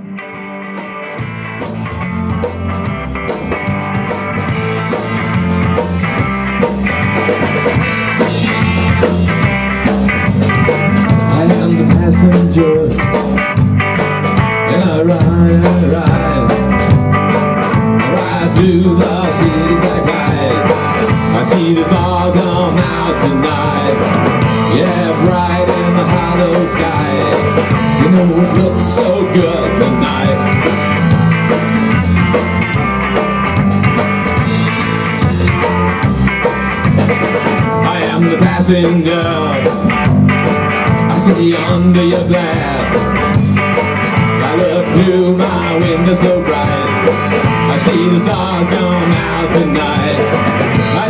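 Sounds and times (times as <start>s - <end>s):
live rock band playing: 0.0s - 51.0s.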